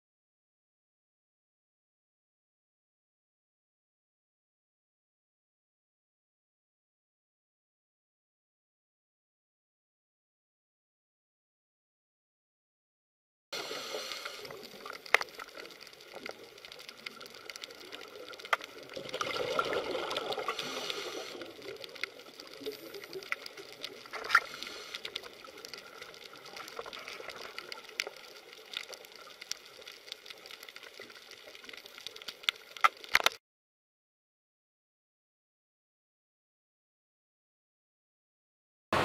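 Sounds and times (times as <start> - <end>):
underwater rush of water: 13.6 - 33.4
sharp underwater clicks: 14.2 - 33.4.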